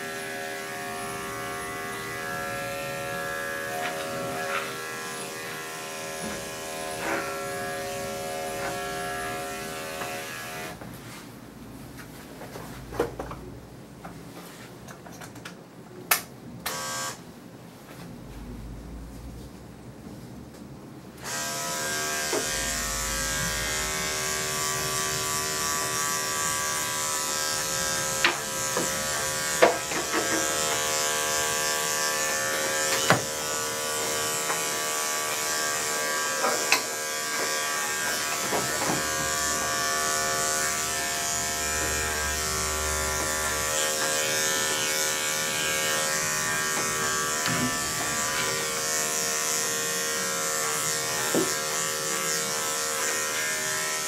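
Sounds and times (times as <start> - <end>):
electric clippers humming: 0.0 - 10.8, 16.6 - 17.2, 21.2 - 54.0.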